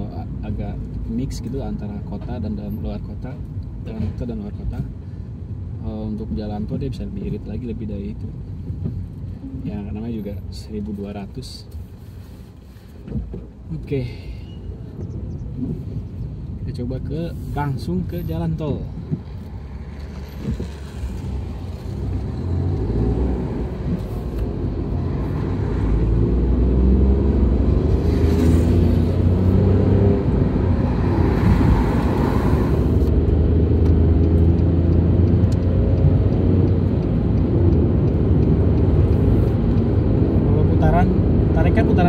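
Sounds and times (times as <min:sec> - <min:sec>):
road and wind rumble: 0:00.0 - 0:42.0
car engine accelerating: 0:19.1 - 0:42.0.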